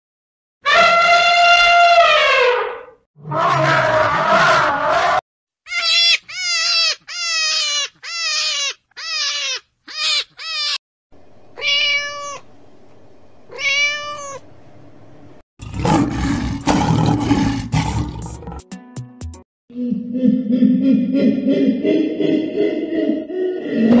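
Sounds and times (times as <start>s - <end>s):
lion roaring: 3.2s - 5.2s, 15.6s - 18.6s, 21.9s - 24.0s
cat meowing: 5.7s - 10.8s, 11.6s - 12.4s, 13.5s - 14.4s.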